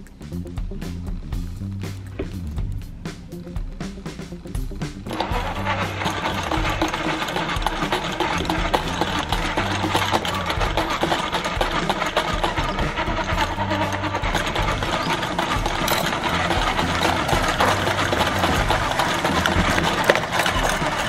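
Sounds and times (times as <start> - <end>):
toy motor and gears whirring: 5.1 - 21.0.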